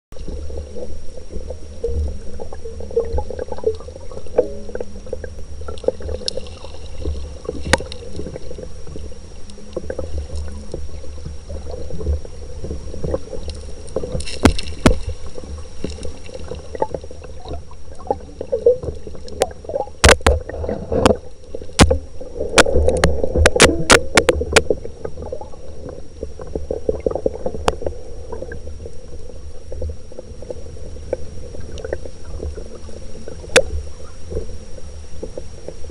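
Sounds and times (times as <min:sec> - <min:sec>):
underwater stream rumble and gurgle: 0:00.1 - 0:35.9
sharp clicks and knocks: 0:13.5 - 0:16.1, 0:19.3 - 0:21.2, 0:21.8 - 0:22.0, 0:22.6 - 0:24.8.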